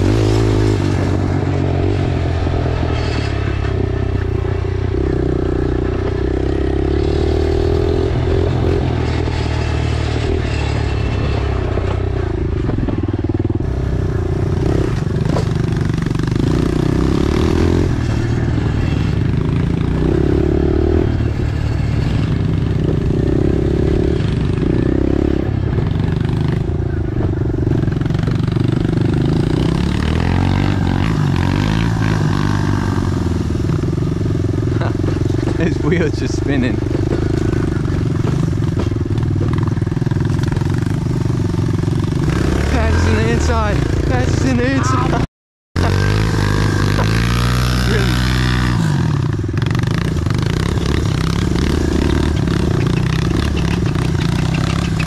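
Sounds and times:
pit bike engine running: 0:00.0 - 0:45.2, 0:45.8 - 0:55.0
bike knocks and rattles: 0:36.8 - 0:41.3.

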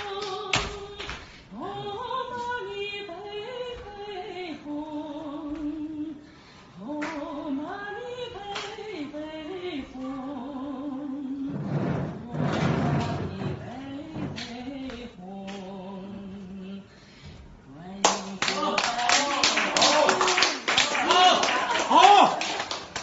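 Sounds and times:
woman singing slow melody: 0:00.0 - 0:19.1.

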